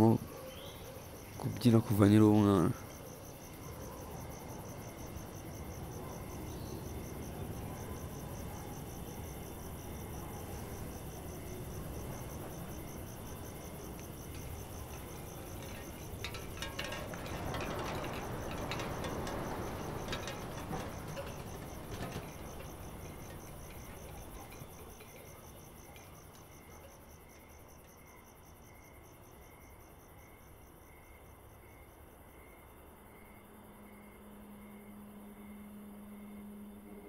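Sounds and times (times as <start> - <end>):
crickets chirping: 0.0 - 37.0
slower low insect pulsing: 0.0 - 37.0
low steady hum: 4.7 - 27.0, 33.4 - 37.0.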